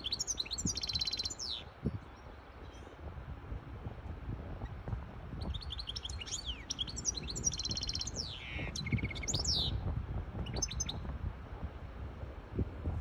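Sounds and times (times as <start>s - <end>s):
finch singing twittering notes: 0.0s - 3.0s, 5.4s - 9.8s, 10.4s - 11.1s.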